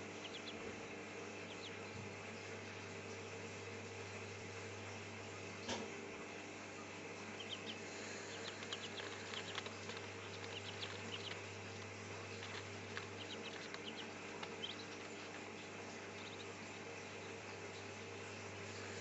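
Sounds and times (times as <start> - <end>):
ducklings peeping: 0.0 - 5.1, 6.6 - 19.0
steady low hum: 0.0 - 19.0.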